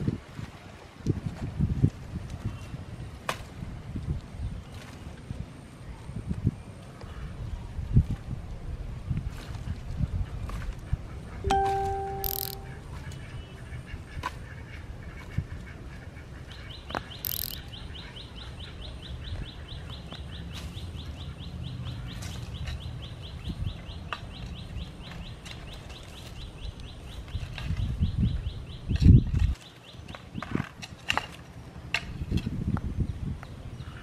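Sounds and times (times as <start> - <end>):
bird chirping: 11.5 - 12.8, 17.1 - 18.1.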